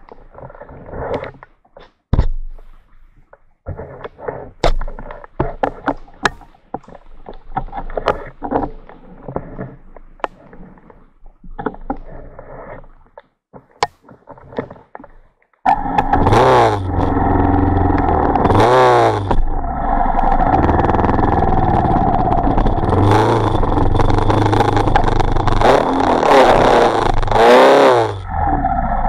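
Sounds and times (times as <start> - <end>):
sharp knocks and clicks: 15.7 - 19.5
motorcycle engine revving: 15.7 - 29.0.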